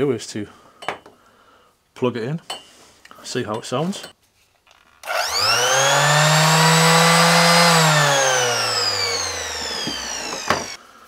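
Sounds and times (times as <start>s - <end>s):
orbital sander motor whine: 5.0s - 10.8s.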